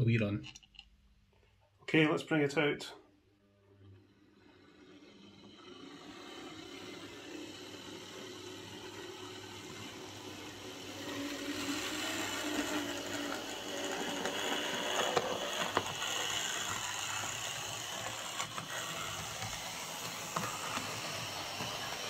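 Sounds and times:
model locomotive motor whirring: 3.6s - 22.0s.

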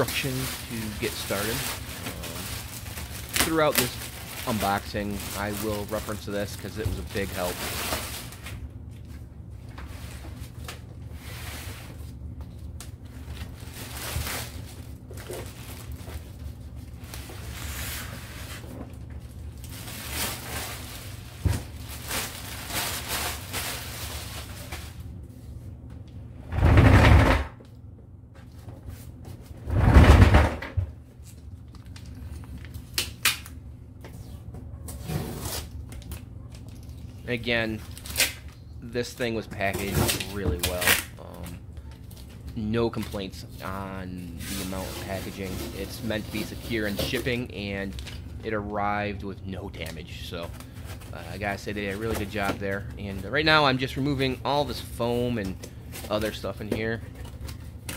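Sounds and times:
plastic wrap rustling: 0.0s - 25.1s, 35.3s - 48.6s, 49.8s - 57.9s
steady low hum: 0.0s - 57.9s
loud tape rips: 0.1s - 6.2s, 37.8s - 38.6s, 39.8s - 41.1s.

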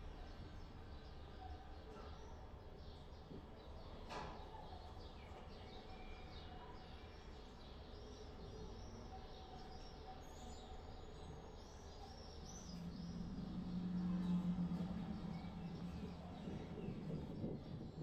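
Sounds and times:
small birds chirping: 4.5s - 18.0s
low background rumble: 11.9s - 18.0s
low steady tone: 12.6s - 17.4s.

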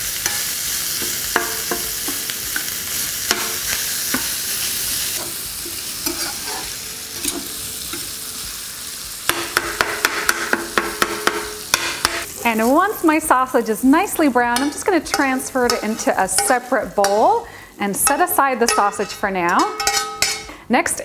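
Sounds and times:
sausage sizzling in oil: 0.0s - 21.0s
metal spatula scraping and tapping pan: 0.2s - 4.4s, 5.1s - 8.1s, 9.3s - 12.3s, 14.4s - 20.6s.

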